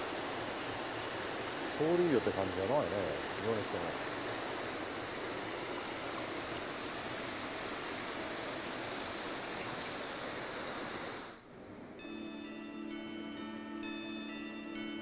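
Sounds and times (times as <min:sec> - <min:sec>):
stream flowing over rocks: 0:00.0 - 0:11.4.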